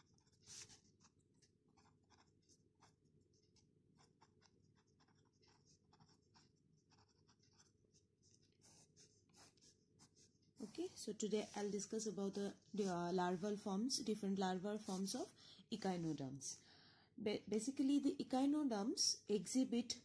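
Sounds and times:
pen scratching on paper: 0.0 - 13.6.

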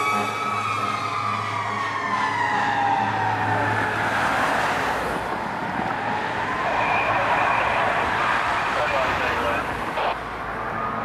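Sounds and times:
fire engine siren wailing: 0.0 - 11.0
car passing by: 2.8 - 11.0.

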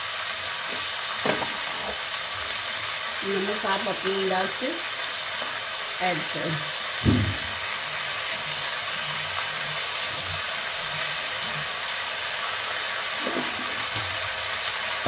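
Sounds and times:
vegetables sizzling in oil: 0.0 - 15.0
knock: 7.0 - 7.5.

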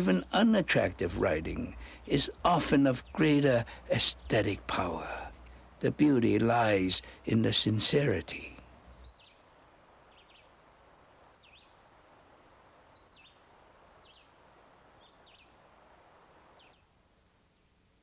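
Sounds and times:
faint steady background hiss: 0.0 - 18.0
small bird chirping: 8.9 - 9.4, 10.1 - 10.5, 11.2 - 11.8, 12.9 - 13.4, 15.0 - 15.6.

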